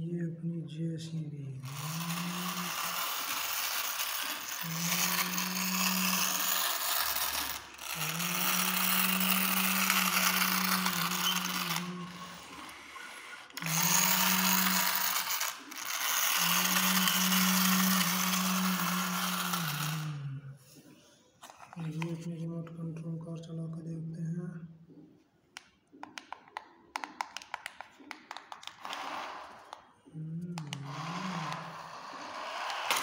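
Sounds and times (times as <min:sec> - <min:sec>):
toy gears whirring and ratcheting: 0:01.6 - 0:20.4, 0:30.6 - 0:33.0.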